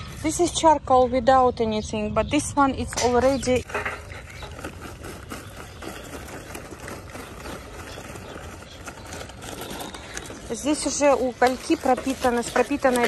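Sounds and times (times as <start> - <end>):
charcoal clattering into metal starter: 3.0 - 13.0.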